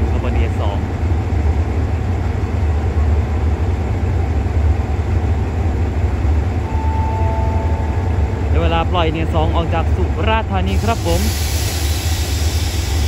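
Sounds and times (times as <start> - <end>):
diesel locomotive idling: 0.0 - 13.0.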